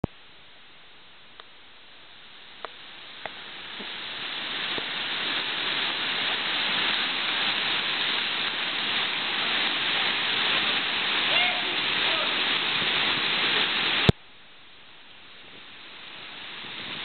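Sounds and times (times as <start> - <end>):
river rapids rushing: 3.4 - 14.1.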